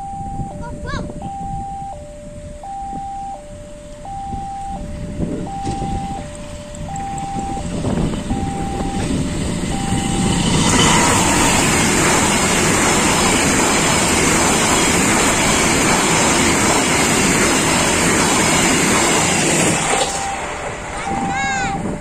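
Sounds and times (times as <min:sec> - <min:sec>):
two-tone beeping: 0:00.0 - 0:17.4, 0:19.6 - 0:22.0
train wheels clattering on rails: 0:05.6 - 0:22.0.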